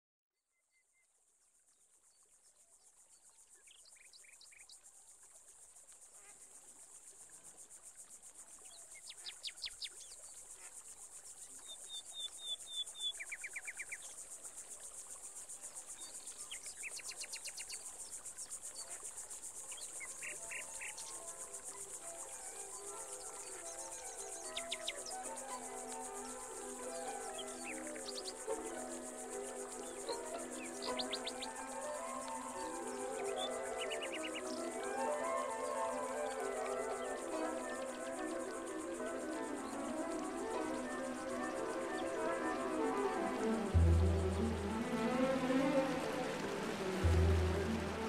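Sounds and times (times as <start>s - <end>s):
insects chirring: 3.5s - 48.0s
soft sustained musical notes: 19.6s - 48.0s.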